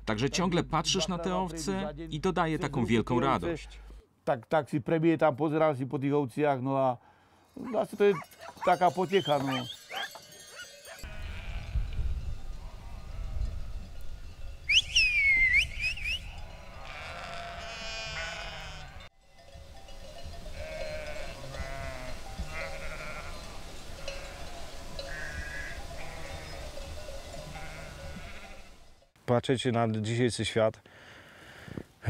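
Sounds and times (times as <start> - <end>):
sheep bleating: 11.0 - 11.9, 16.6 - 19.1, 20.5 - 24.5, 25.1 - 26.6, 27.5 - 28.8
shepherd's sharp whistle: 14.7 - 16.3.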